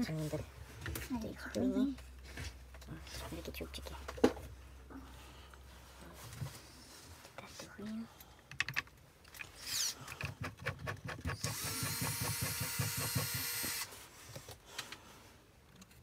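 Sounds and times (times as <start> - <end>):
power tool motor whine: 11.4 - 13.9.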